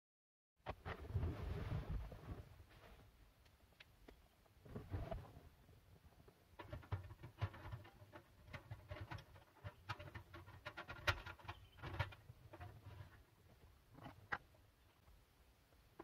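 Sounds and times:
gas canister clicks and rattles: 0:06.6 - 0:13.2.

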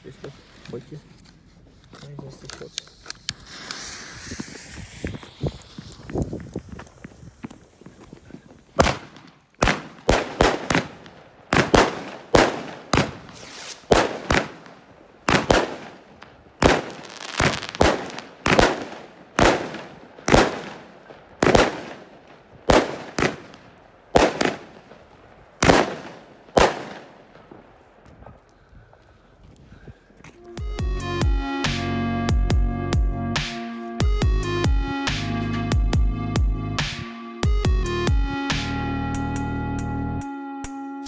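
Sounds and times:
firework cake bangs: 0:08.8 - 0:16.0, 0:25.6 - 0:27.2.

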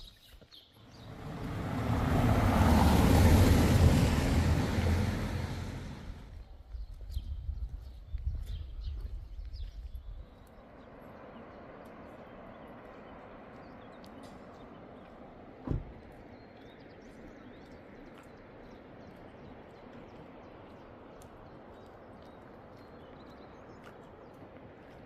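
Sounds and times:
footsteps on paved street: 0:00.0 - 0:25.0
street ambience: 0:00.8 - 0:25.0
low thump: 0:15.6 - 0:16.0.

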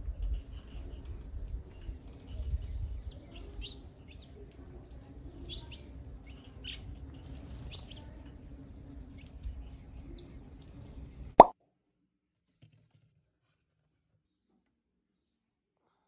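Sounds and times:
sparrows chirping: 0:00.0 - 0:11.3.

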